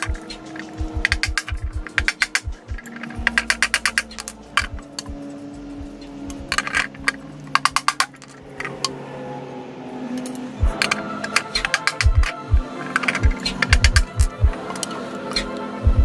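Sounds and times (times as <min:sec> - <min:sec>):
hammer tapping screwdriver: 0:00.0 - 0:05.2, 0:10.7 - 0:12.4, 0:13.0 - 0:14.8.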